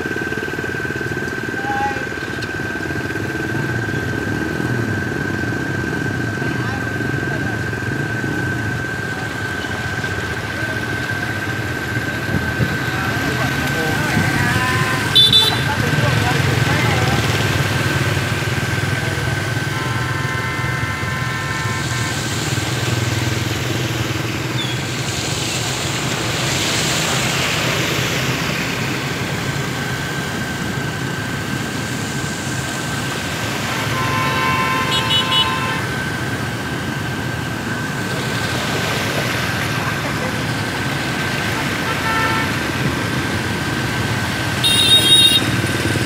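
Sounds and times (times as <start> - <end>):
small motorbike engines: 0.0 - 46.0
wheels splashing through water: 0.0 - 46.0
horn beeping: 11.8 - 17.3, 18.1 - 23.2, 33.5 - 36.3, 41.4 - 43.0, 44.5 - 45.8.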